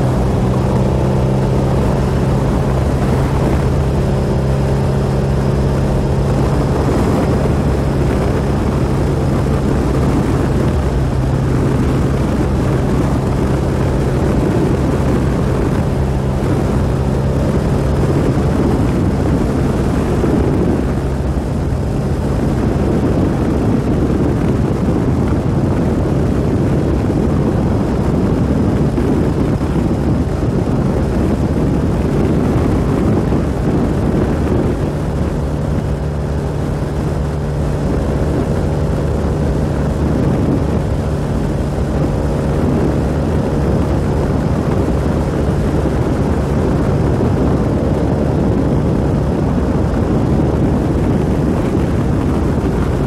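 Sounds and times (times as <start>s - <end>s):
motorcycle engine running: 0.0s - 53.0s
wind and road rush: 0.0s - 53.0s.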